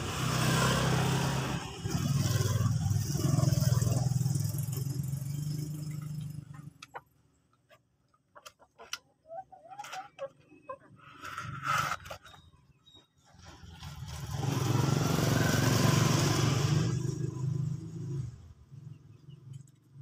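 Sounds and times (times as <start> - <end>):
motorcycle engine passing: 0.0 - 6.8, 13.4 - 18.6
small clicks and scrapes: 6.5 - 12.5.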